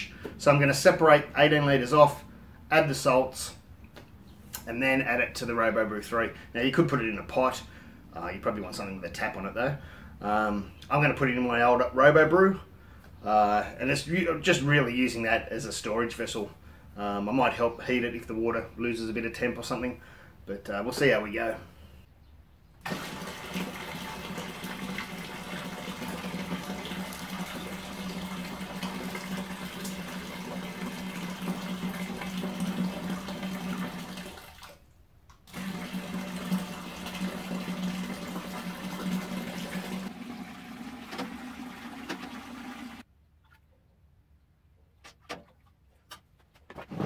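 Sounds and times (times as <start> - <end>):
water splashing into vessel: 22.8 - 34.9.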